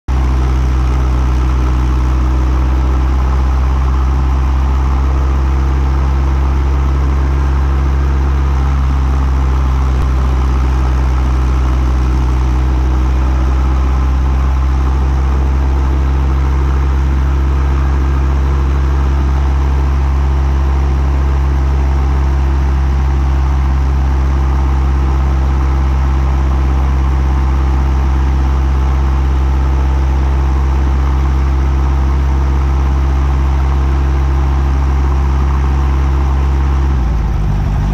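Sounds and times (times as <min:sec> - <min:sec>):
helicopter engine and rotor drone: 0:00.1 - 0:37.9.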